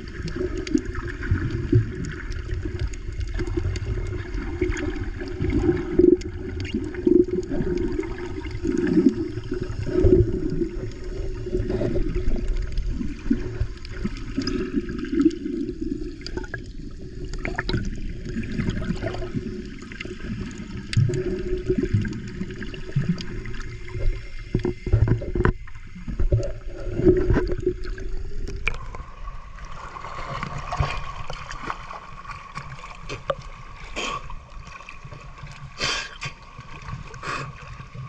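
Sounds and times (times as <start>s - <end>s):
muffled underwater sloshing: 0.0s - 38.0s
small underwater crackles: 0.0s - 38.0s.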